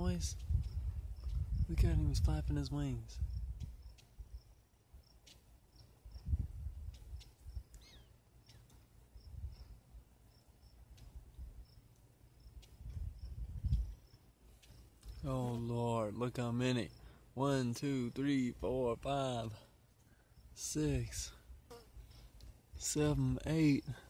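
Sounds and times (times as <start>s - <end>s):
wind on microphone: 0.0s - 4.5s, 6.0s - 7.7s, 9.2s - 9.7s, 12.6s - 14.0s
insect chirping: 0.4s - 1.7s, 3.2s - 15.3s, 16.6s - 18.6s, 19.4s - 22.3s.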